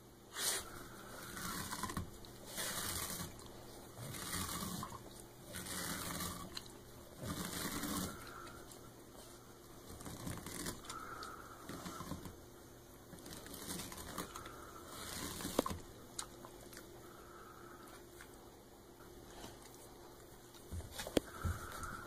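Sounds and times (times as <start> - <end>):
dog tearing a sponge: 0.3 - 8.7, 9.9 - 12.4, 13.2 - 15.8.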